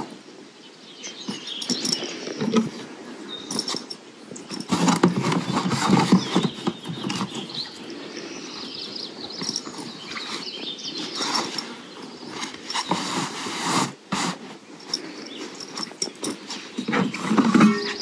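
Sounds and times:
gear rustling and knocking: 0:01.3 - 0:02.8, 0:03.5 - 0:07.9, 0:09.2 - 0:10.6, 0:14.9 - 0:18.0.

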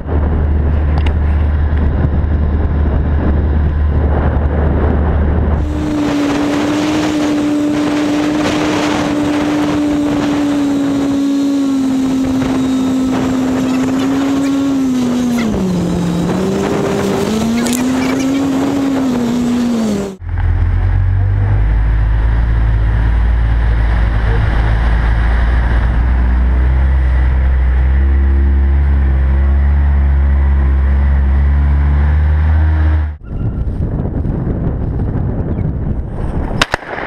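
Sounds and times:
atv engine revving: 0:00.0 - 0:33.2.

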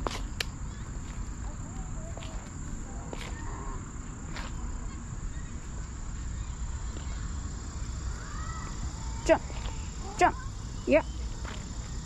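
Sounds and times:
crickets chirping: 0:00.0 - 0:12.0
faint bird chirps: 0:04.4 - 0:11.4.

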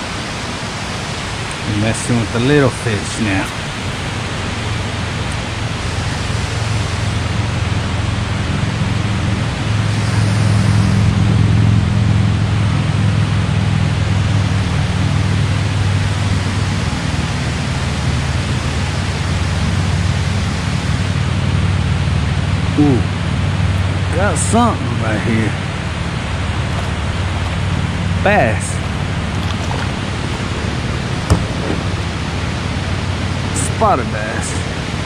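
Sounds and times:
low hum: 0:01.1 - 0:34.0.

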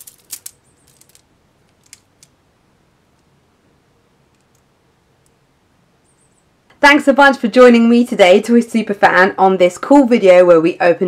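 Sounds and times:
plastic beads clicking: 0:00.0 - 0:02.4.

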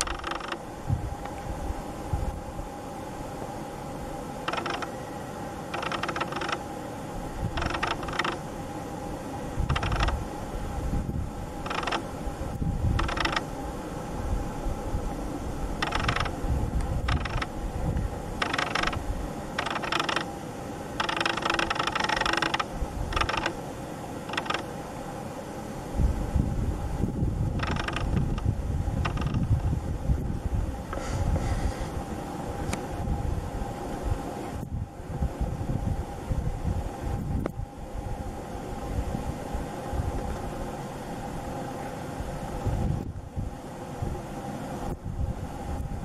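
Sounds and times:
small mechanism whirring: 0:00.0 - 0:01.5, 0:04.4 - 0:06.7, 0:07.4 - 0:08.5, 0:09.5 - 0:10.3, 0:11.5 - 0:13.6, 0:15.8 - 0:23.6, 0:24.2 - 0:24.8, 0:27.0 - 0:29.7
steady low hum: 0:00.0 - 0:46.0.

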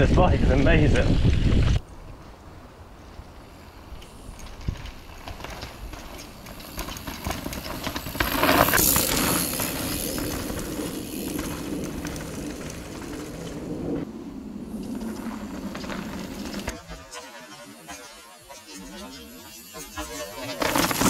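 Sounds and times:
wind on microphone: 0:00.0 - 0:02.2
bike tyres rolling on dirt: 0:00.0 - 0:21.0
bike rattling over bumps: 0:03.0 - 0:17.8, 0:18.9 - 0:21.0.

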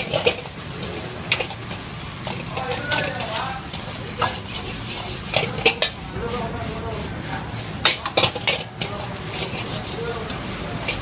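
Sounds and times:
ladle clacking on metal pan: 0:00.0 - 0:00.5, 0:01.3 - 0:06.0, 0:07.8 - 0:11.0
ladle scraping rice in a wok: 0:00.0 - 0:11.0.

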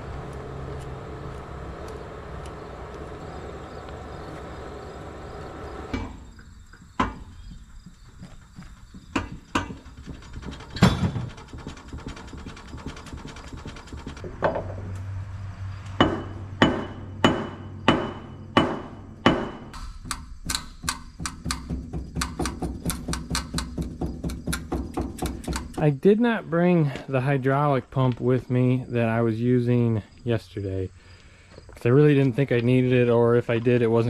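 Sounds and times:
sharp metallic taps: 0:08.6 - 0:10.6, 0:15.9 - 0:25.9.

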